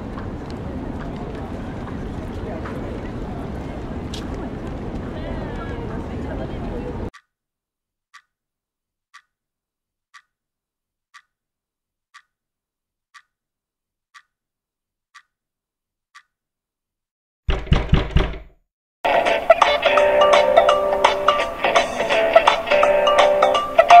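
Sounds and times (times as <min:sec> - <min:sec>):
clock ticking softly: 0:08.1 - 0:08.3, 0:09.1 - 0:09.3, 0:10.1 - 0:10.3, 0:11.1 - 0:11.3, 0:12.1 - 0:12.4, 0:13.1 - 0:13.3, 0:14.1 - 0:14.4, 0:15.1 - 0:15.3
door being knocked in: 0:17.5 - 0:18.6
music: 0:19.1 - 0:24.0.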